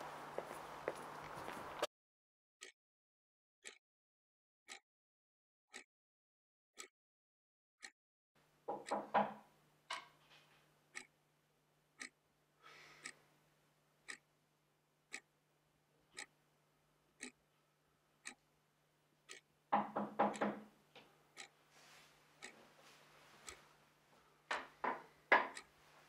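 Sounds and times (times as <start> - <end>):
clock ticking: 8.7 - 10.2, 10.8 - 11.2, 11.9 - 12.2, 13.0 - 13.2, 14.0 - 14.3, 15.1 - 15.4, 16.1 - 16.4, 17.1 - 17.5, 18.2 - 18.5, 19.2 - 20.6, 21.3 - 21.6, 22.4 - 22.6, 23.4 - 23.6, 24.5 - 25.8.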